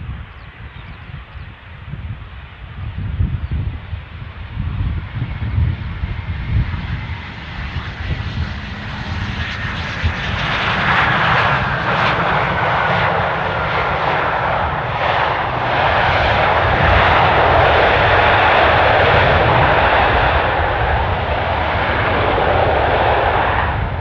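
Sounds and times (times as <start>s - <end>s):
jet aircraft engine noise: 0.0s - 24.0s.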